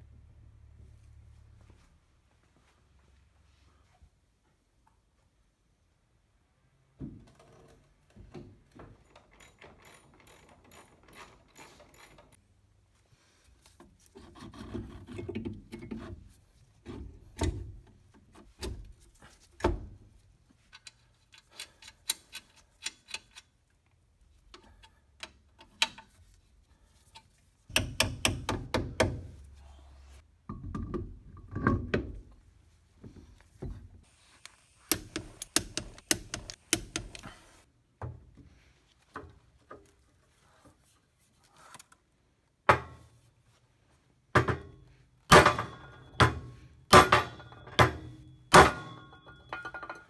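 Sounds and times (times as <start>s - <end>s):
metal tools clinking: 8.9s - 12.4s, 47.2s - 50.0s
hand ratchet clicking: 34.9s - 37.3s.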